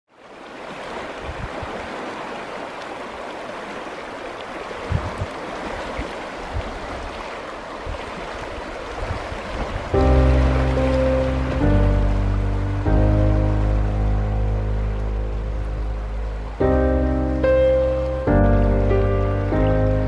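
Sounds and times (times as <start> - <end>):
river rushing: 0.1 - 20.0
low thumps: 10.0 - 20.0.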